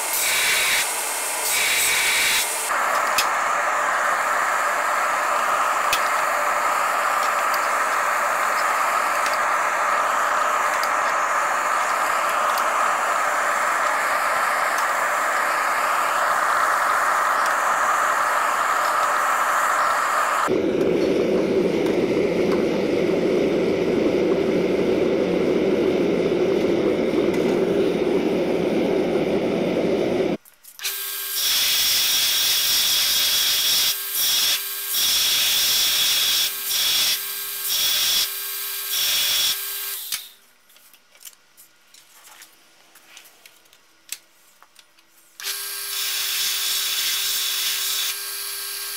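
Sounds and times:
gas burner hissing rush: 0:00.0 - 0:30.4, 0:31.4 - 0:38.3.

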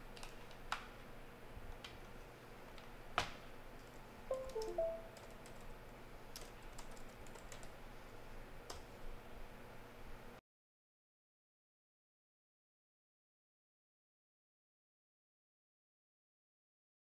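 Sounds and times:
laptop keyboard typing: 0:00.2 - 0:00.6, 0:04.3 - 0:05.7, 0:06.3 - 0:07.8
electronic chime: 0:04.3 - 0:05.2.

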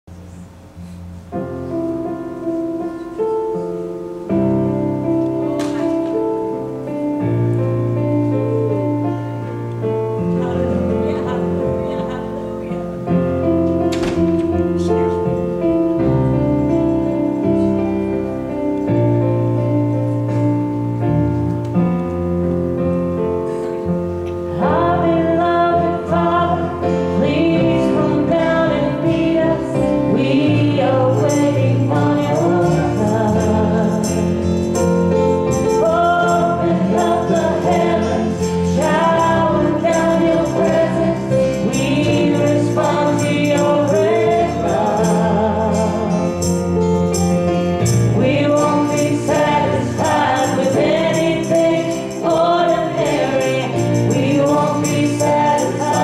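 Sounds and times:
musical accompaniment: 0:00.0 - 0:56.0
percussion: 0:00.1 - 0:56.0
women singing gospel song: 0:24.5 - 0:46.6, 0:48.1 - 0:56.0.

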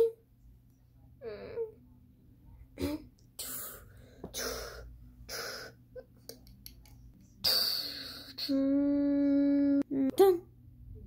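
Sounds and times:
breathy hissing mouth sounds: 0:03.4 - 0:05.8, 0:07.4 - 0:08.6.

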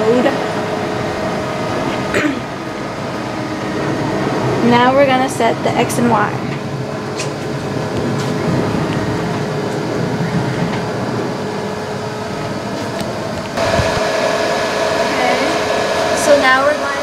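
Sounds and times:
stepper motors rumbling: 0:00.0 - 0:17.0
steady tone: 0:10.9 - 0:17.0.

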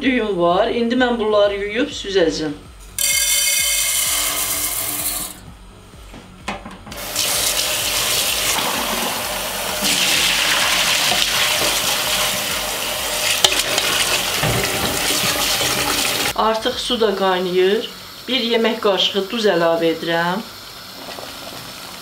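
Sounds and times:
water running and splashing: 0:07.0 - 0:16.4.

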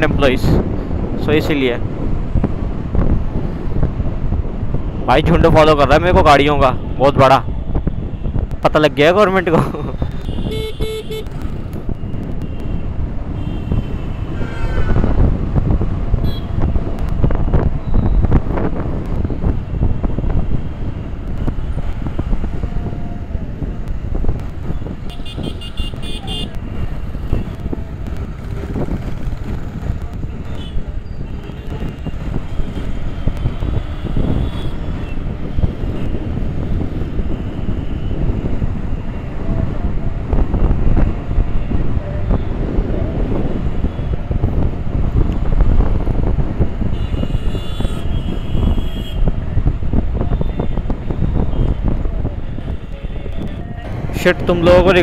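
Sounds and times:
wind buffeting microphone: 0:00.0 - 0:55.0
vehicle horn honking: 0:10.2 - 0:11.3, 0:46.9 - 0:49.2.

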